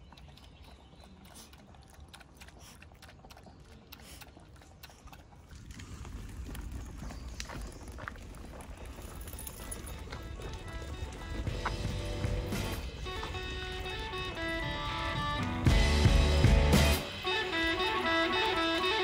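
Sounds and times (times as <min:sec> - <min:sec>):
footsteps crunching on trail: 0:05.7 - 0:15.9, 0:17.2 - 0:19.0.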